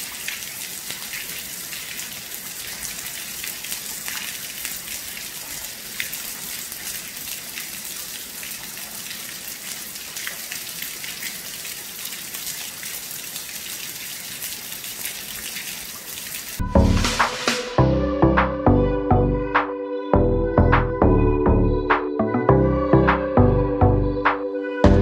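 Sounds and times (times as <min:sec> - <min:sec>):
heavy rain: 0:00.0 - 0:17.8.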